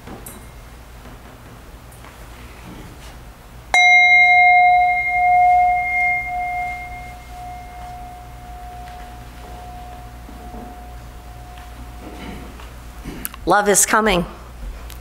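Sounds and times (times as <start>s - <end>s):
meditation bell ringing: 3.8s - 12.9s.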